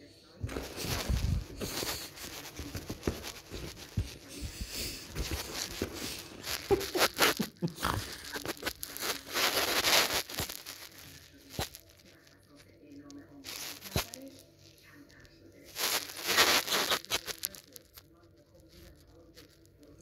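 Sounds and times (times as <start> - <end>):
fabric rustling and scratching: 0.4 - 12.3, 13.4 - 14.6, 15.7 - 17.9.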